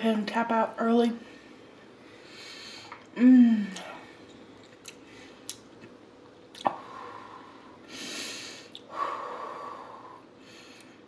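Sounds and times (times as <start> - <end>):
mouth clicks: 6.5 - 6.8
person breathing heavily: 6.8 - 11.0.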